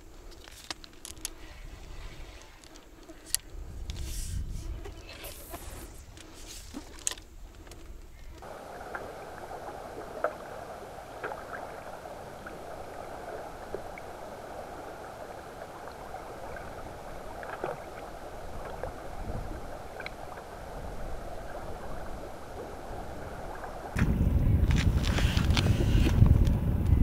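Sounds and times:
faint clicks and ticks: 0.1s - 1.6s, 2.3s - 4.1s, 6.1s - 9.0s
muffled underwater hiss: 1.3s - 27.0s.

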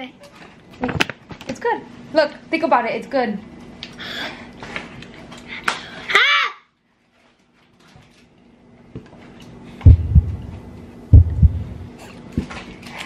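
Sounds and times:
faint steady hum: 9.3s - 13.0s
dull low thumps: 9.9s - 12.0s.

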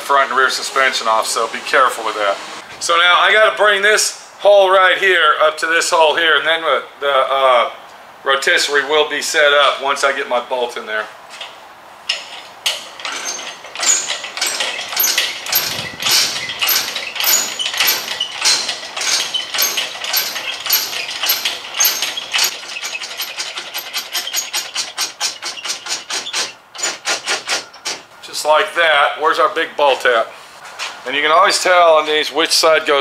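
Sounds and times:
hydraulic jack metallic clicks: 12.1s - 28.0s.

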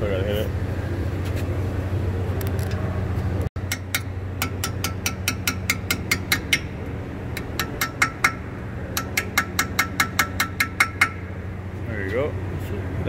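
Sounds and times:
hammer tapping metal punch: 3.6s - 6.8s, 7.4s - 11.4s.

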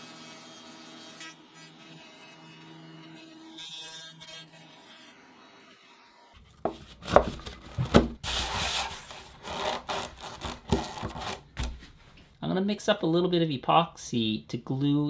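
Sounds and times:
handle scraping against foam: 6.4s - 12.0s.

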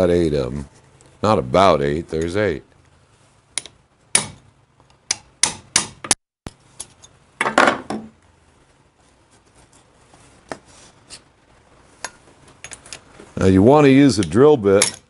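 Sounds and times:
hammer striking metal punch: 3.6s - 4.4s, 5.1s - 6.2s.

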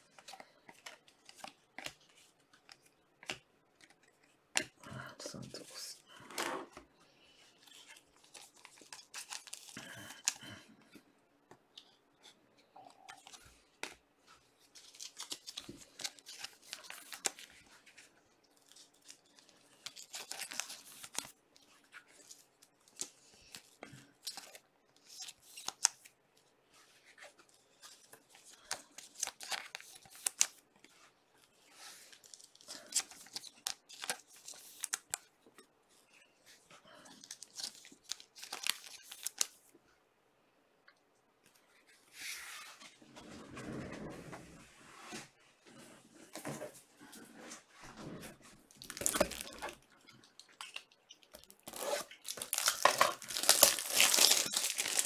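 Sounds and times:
wrappers crinkling and tearing: 7.8s - 10.4s, 14.7s - 17.5s, 18.6s - 21.4s, 37.1s - 39.6s, 48.7s - 55.0s.

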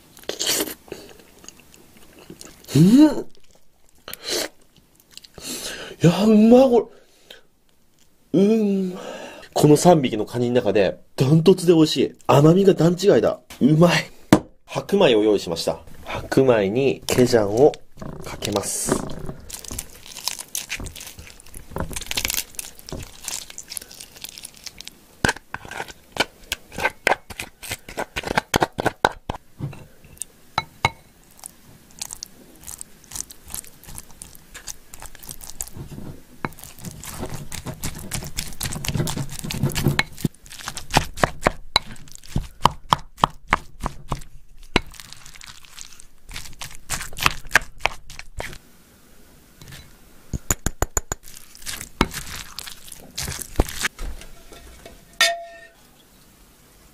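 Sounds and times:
wet squelching of crab roe: 17.1s - 28.5s, 31.3s - 42.6s, 43.6s - 48.6s, 51.2s - 53.9s.

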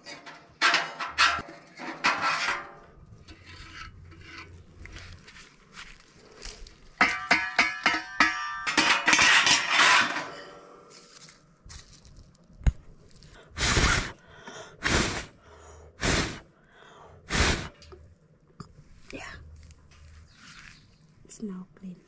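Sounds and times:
scraping of ash: 0.0s - 7.0s, 13.1s - 15.4s, 16.0s - 16.4s, 17.3s - 17.9s.

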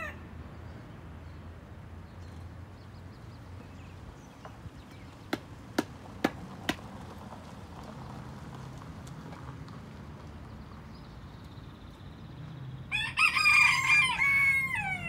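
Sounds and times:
sharp knocks: 5.3s - 6.8s.

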